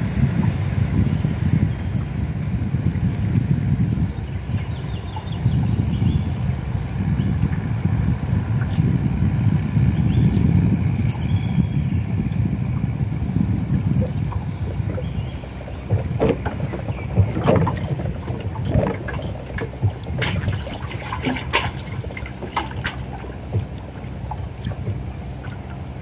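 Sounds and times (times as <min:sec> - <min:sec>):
boat low rumble: 0:00.0 - 0:26.0
gear knocking against boat: 0:13.0 - 0:26.0.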